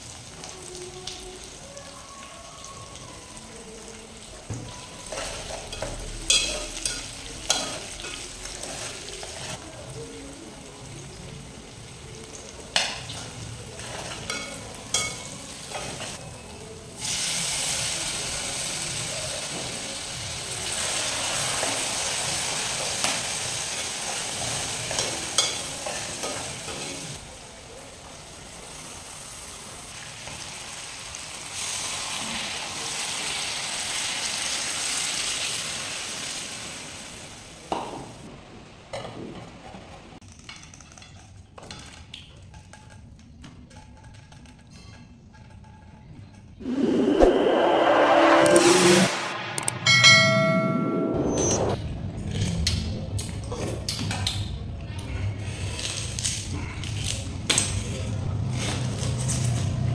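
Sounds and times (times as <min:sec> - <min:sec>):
pot sizzling: 0:00.0 - 0:16.2, 0:16.9 - 0:38.3.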